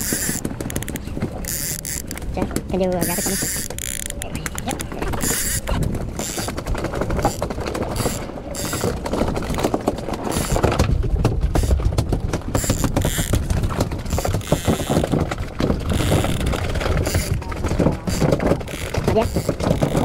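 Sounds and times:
fishing reel clicking: 0.0s - 2.3s, 3.0s - 6.5s, 7.2s - 9.0s, 12.6s - 13.3s, 14.1s - 15.1s, 15.9s - 17.4s, 18.1s - 20.0s.

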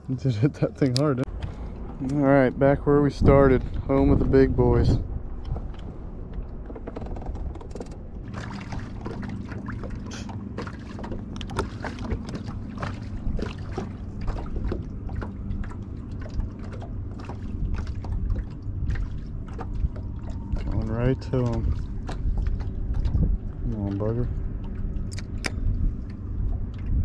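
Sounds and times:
faint low hum: 0.0s - 27.0s
waves lapping against a hull: 0.0s - 27.0s
wind noise on microphone: 1.3s - 9.2s, 16.2s - 27.0s.

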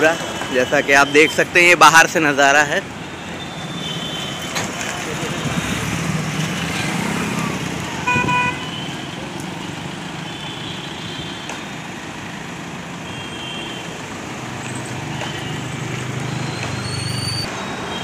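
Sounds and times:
vehicle engines passing: 0.0s - 13.0s, 13.9s - 18.0s
vehicle horn toot: 8.0s - 8.9s
distant horns: 8.0s - 9.0s.

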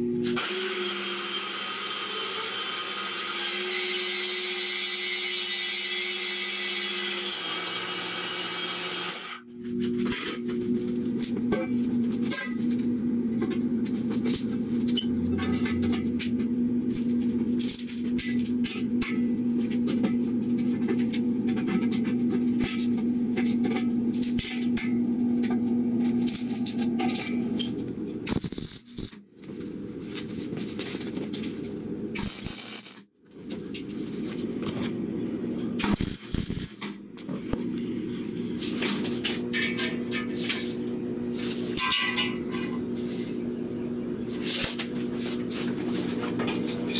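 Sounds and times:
steady low hum: 9.4s - 46.9s
metal tubing clanking and scraping: 14.3s - 16.3s, 41.7s - 42.8s.

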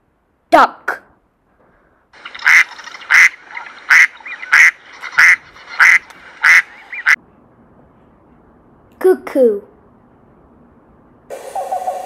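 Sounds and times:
duck quacking: 2.4s - 7.2s.

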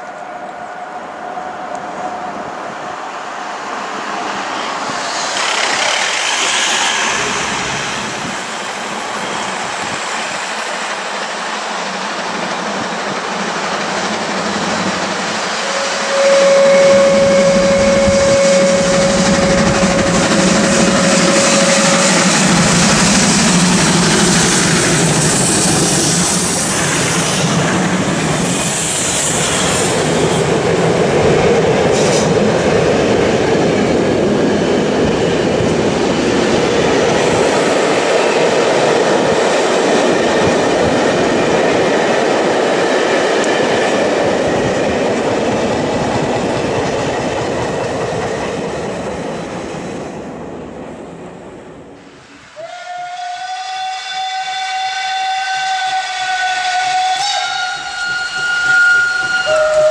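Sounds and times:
steam locomotives: 0.0s - 59.9s
train wheels clattering: 4.9s - 50.0s, 57.1s - 59.9s
steam whistle blast: 15.4s - 24.4s, 52.5s - 59.9s.

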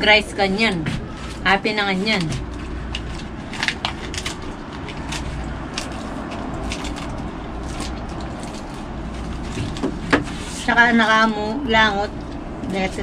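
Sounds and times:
low outdoor rumble: 0.0s - 13.0s
lettuce leaves tearing: 2.5s - 10.6s.

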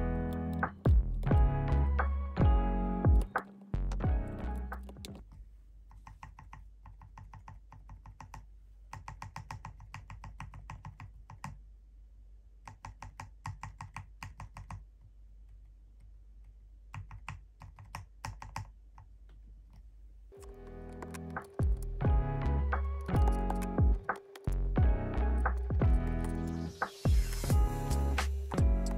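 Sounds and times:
mechanical keyboard clicks and taps: 5.9s - 11.6s, 12.7s - 14.8s, 16.9s - 19.1s, 23.0s - 24.5s.

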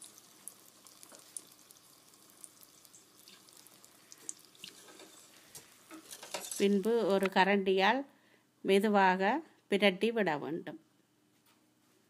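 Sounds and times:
deep-frying sizzle with pops: 0.0s - 7.4s.

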